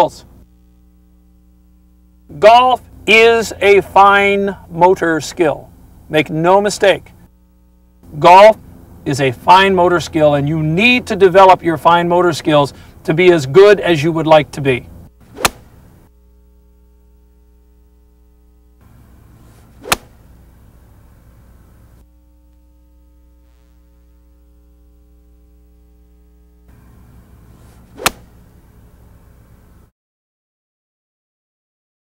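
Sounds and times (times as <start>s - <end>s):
steady low hum: 0.0s - 29.9s
golf club striking ball: 15.3s - 15.9s, 19.1s - 20.6s, 27.8s - 28.6s
swish of golf swing: 15.3s - 15.9s, 19.4s - 20.3s, 27.5s - 28.5s.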